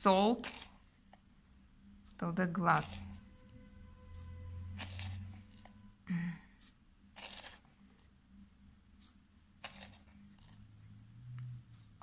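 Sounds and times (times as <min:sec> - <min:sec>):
spoon scraping salt crystals: 0:00.0 - 0:01.0, 0:02.1 - 0:03.4, 0:04.1 - 0:06.0, 0:06.6 - 0:08.2, 0:08.9 - 0:10.9.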